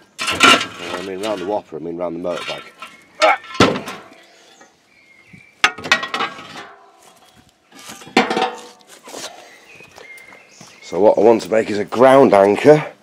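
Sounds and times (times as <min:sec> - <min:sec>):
scrap steel clanking: 0:00.0 - 0:04.7, 0:05.6 - 0:09.1
metal clatter: 0:00.1 - 0:01.6, 0:02.2 - 0:04.2, 0:05.6 - 0:06.8, 0:07.8 - 0:08.8
sharp metallic clanks: 0:02.3 - 0:04.2, 0:05.6 - 0:06.9.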